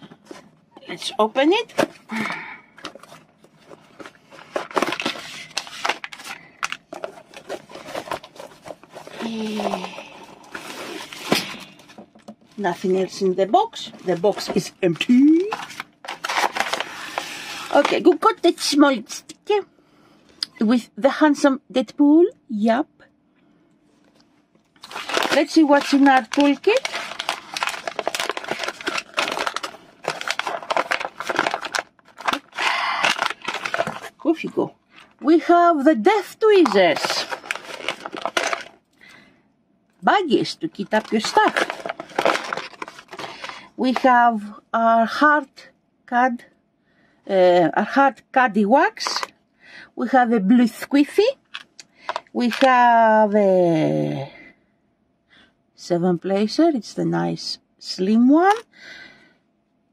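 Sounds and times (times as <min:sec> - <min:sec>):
packaging rustling and crinkling: 0:01.7 - 0:18.3, 0:24.8 - 0:35.2, 0:36.5 - 0:38.9, 0:40.7 - 0:44.1, 0:51.4 - 0:52.8.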